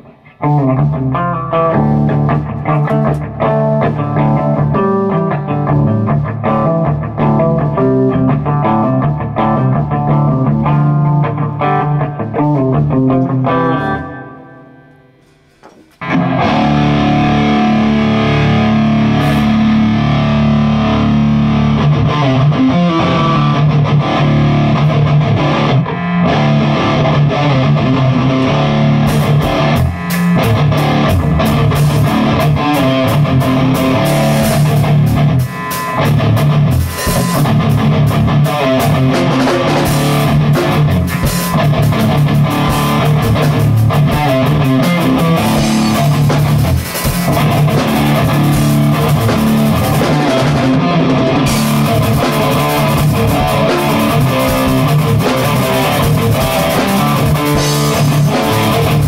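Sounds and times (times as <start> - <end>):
distorted electric guitar: 0.0 - 59.0
drum kit with cymbals: 13.8 - 16.2, 19.0 - 20.0, 29.0 - 59.0.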